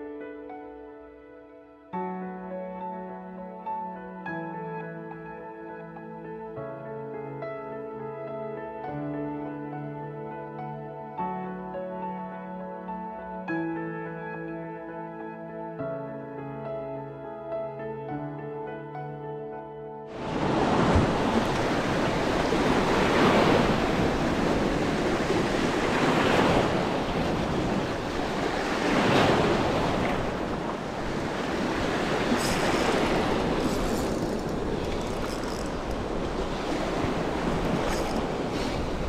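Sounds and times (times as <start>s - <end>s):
sea waves breaking on shore: 20.1s - 39.0s
wind buffeting microphone: 20.2s - 39.0s.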